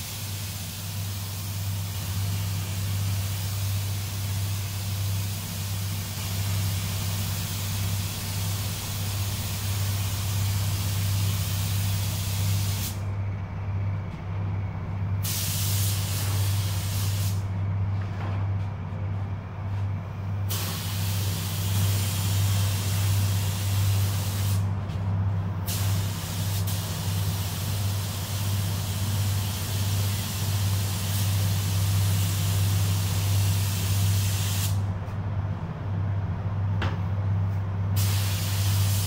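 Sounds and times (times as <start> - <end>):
spray gun hissing: 0.0 - 13.0, 15.2 - 17.4, 20.5 - 24.6, 25.7 - 34.8, 38.0 - 39.0
steady low hum: 0.0 - 39.0.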